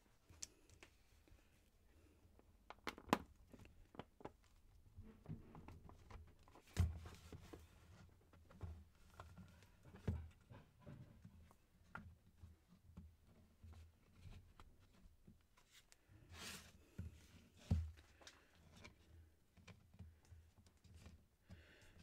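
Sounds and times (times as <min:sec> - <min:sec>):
plastic clicks and knocks: 0:02.6 - 0:04.5.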